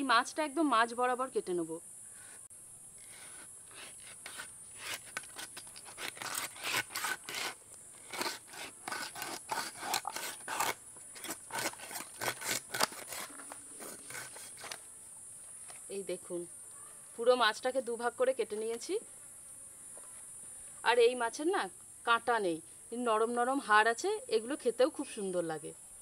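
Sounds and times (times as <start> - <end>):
blade sawing through fish: 3.0 - 14.8.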